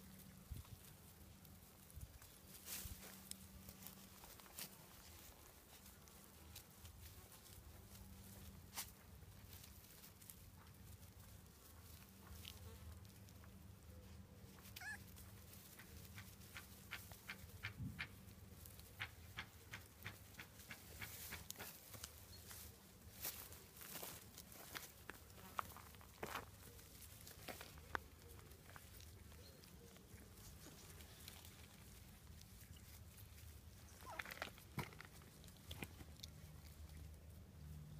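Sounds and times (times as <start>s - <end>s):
puppies rustling on grass: 0.0s - 37.9s
puppies whimpering: 14.7s - 15.1s.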